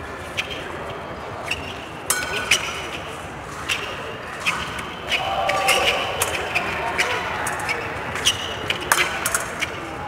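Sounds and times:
fencing blades clinking: 0:01.6 - 0:03.0.

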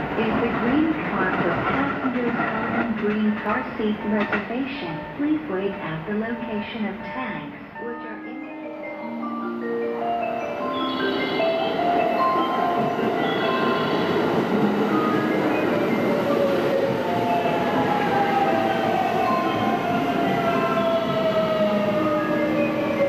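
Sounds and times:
train rail and wheel noise: 0:00.0 - 0:07.8, 0:08.5 - 0:23.0
chiming melody: 0:07.8 - 0:23.0.

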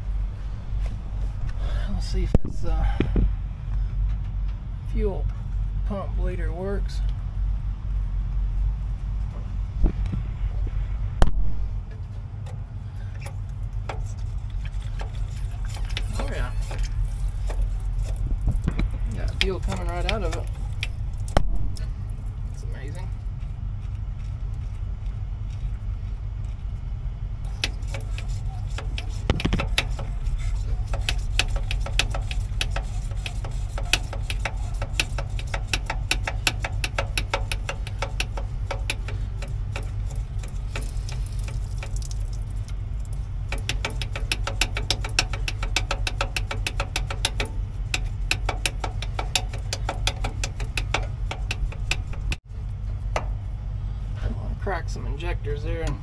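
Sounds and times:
steady low hum: 0:00.0 - 0:56.0
fuel pump rapid clicking: 0:12.4 - 0:21.4, 0:27.4 - 0:53.4.

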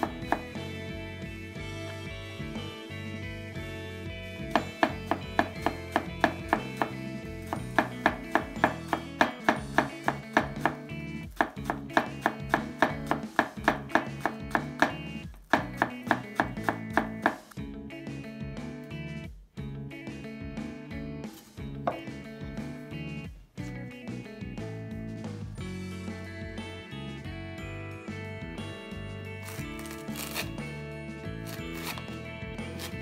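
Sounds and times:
knife chopping on cutting board: 0:00.0 - 0:00.6, 0:04.6 - 0:17.5, 0:21.9 - 0:22.1, 0:31.5 - 0:33.0
background music: 0:00.0 - 0:33.0.

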